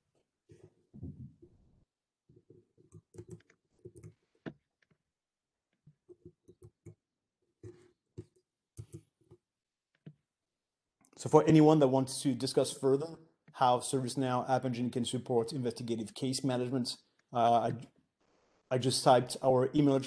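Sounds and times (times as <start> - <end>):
faint keyboard typing: 2.3 - 5.0, 5.7 - 7.0, 7.6 - 10.2.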